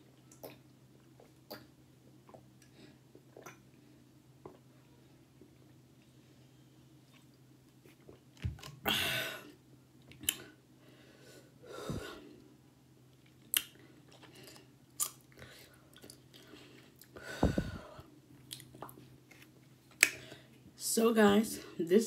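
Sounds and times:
person chewing food: 13.1 - 20.4.

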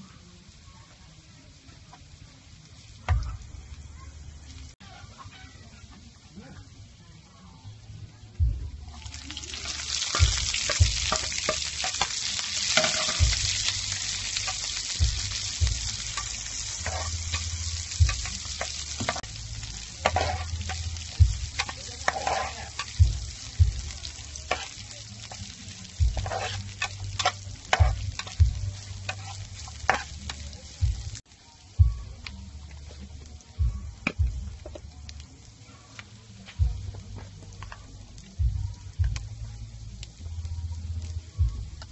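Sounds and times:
vegetables sizzling in hot oil: 0.0 - 7.6, 8.8 - 36.4
metal ladle scraping a pan: 9.6 - 15.0, 15.8 - 23.5, 24.2 - 30.5.

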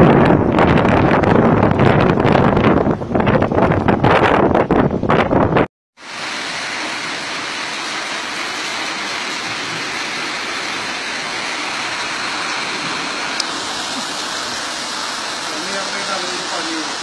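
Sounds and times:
gusty wind buffeting microphone: 0.0 - 5.7
heavy rain pouring: 6.0 - 17.0.

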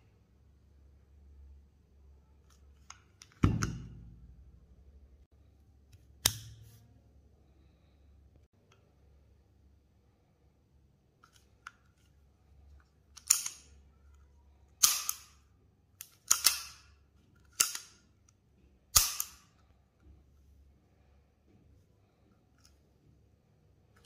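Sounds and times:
pistol action metallic snaps: 14.8 - 15.4, 16.0 - 16.8, 18.9 - 19.5.

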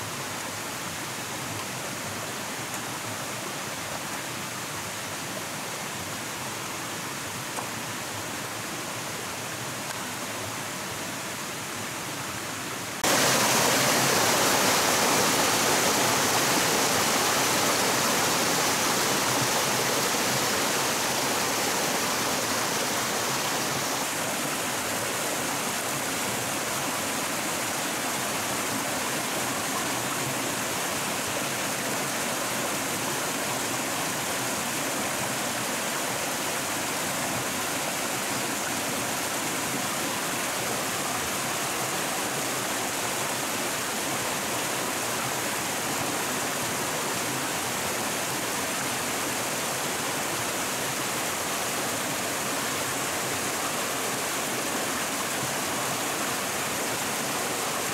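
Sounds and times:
water rushing over rocks: 0.0 - 57.9.

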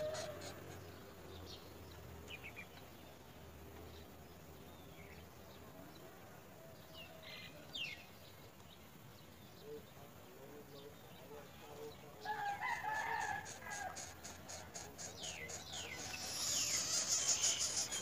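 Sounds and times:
drawn-out bird call: 0.0 - 1.3, 12.8 - 18.0
high bird chirps: 13.5 - 18.0.

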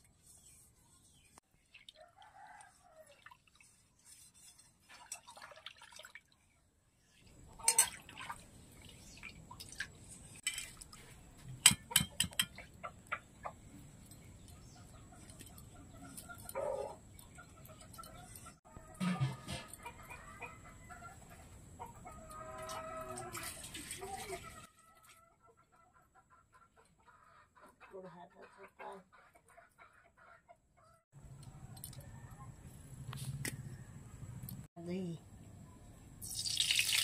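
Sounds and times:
chicken clucking: 14.5 - 32.6
knocks against metal bowls: 19.0 - 19.8.

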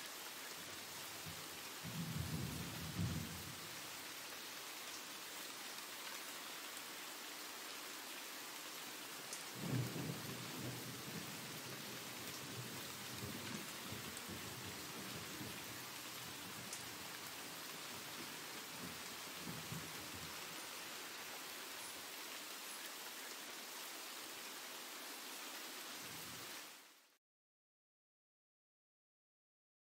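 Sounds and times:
rain hiss: 0.0 - 27.2
rumble of thunder: 1.9 - 3.6, 9.6 - 15.7.

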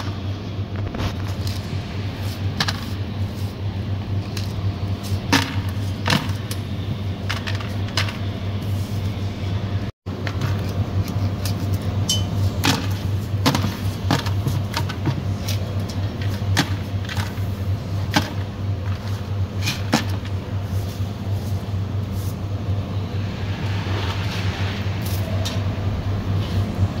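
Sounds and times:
low machine hum: 0.0 - 27.0
bristle brushing on stainless steel: 1.4 - 6.0, 20.5 - 25.8.

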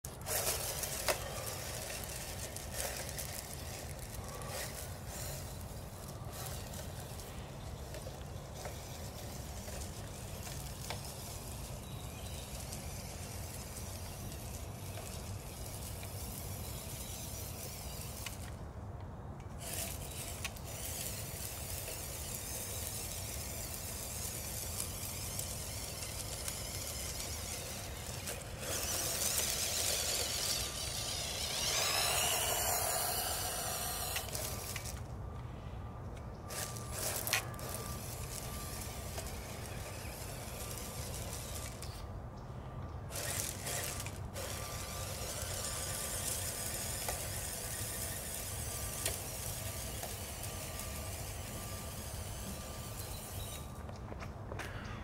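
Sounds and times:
toy car motor hiss: 0.1 - 18.6, 19.5 - 35.1, 36.5 - 42.1, 43.1 - 53.8
rising and falling whine: 19.4 - 42.2, 42.8 - 54.3.

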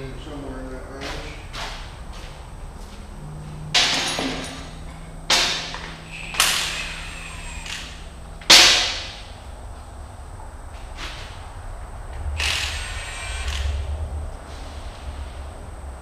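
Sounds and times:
sharp metallic knocks: 3.7 - 7.0, 7.6 - 9.4.

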